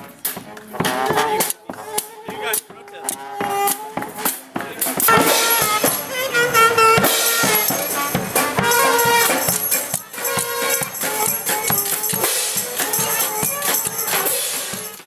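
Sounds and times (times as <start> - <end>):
bass drum beats: 0.0 - 15.0
brass horns playing tune: 0.4 - 15.0
hand cymbals clashing: 5.0 - 15.0.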